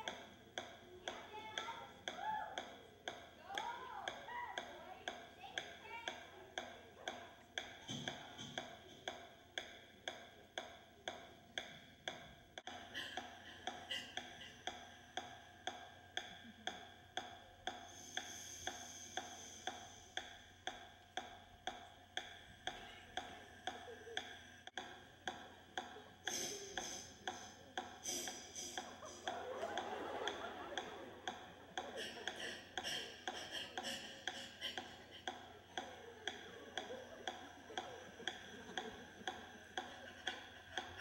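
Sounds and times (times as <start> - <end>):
clock-like ticking: 0.0 - 41.0.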